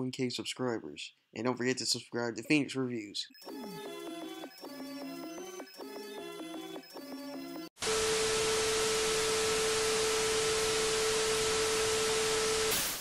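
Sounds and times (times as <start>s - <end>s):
music: 3.3s - 7.7s.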